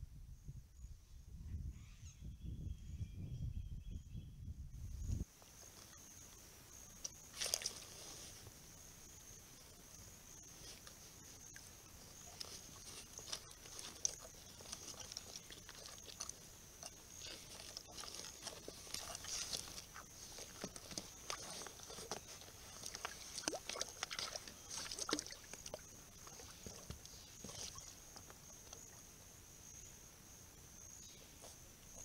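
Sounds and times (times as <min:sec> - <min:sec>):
water splashing in a trough: 0:12.2 - 0:28.0.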